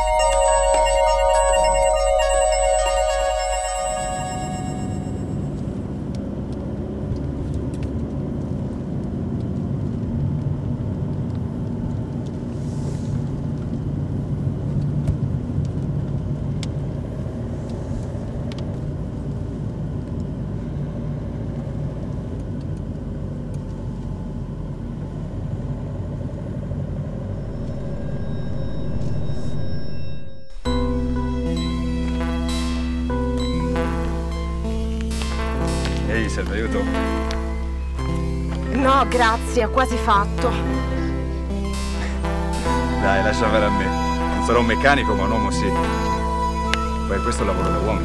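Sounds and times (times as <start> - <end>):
car engine and road noise: 5.8 - 31.4.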